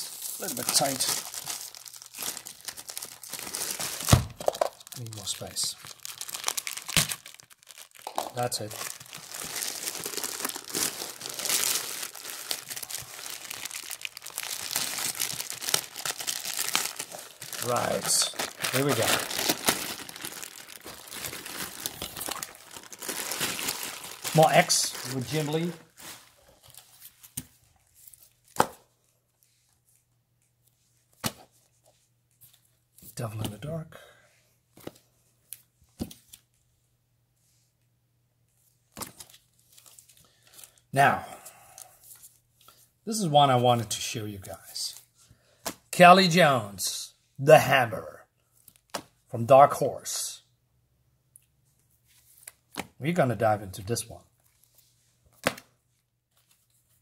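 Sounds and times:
plastic bag crinkling: 0:00.0 - 0:26.9.

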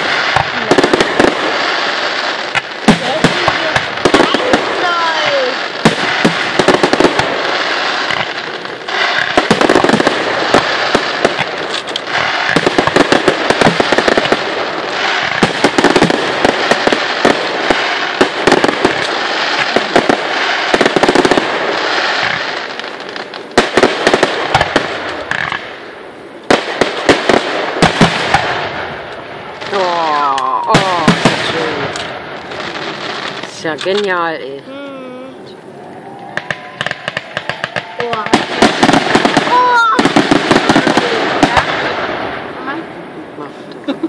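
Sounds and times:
fireworks crackling: 0:00.0 - 0:44.0
fireworks shells bursting: 0:02.4 - 0:25.8, 0:36.3 - 0:42.1.

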